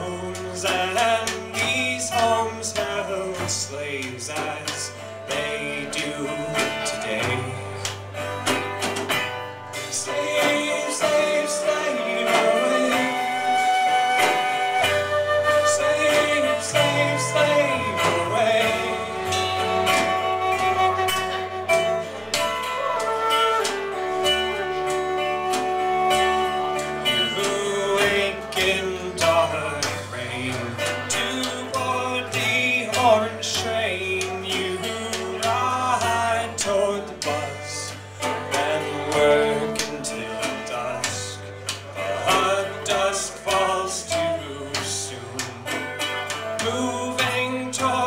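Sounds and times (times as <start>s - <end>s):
keyboard playing: 0.0s - 48.0s
plucked banjo: 0.0s - 48.0s
flute melody: 9.4s - 31.4s.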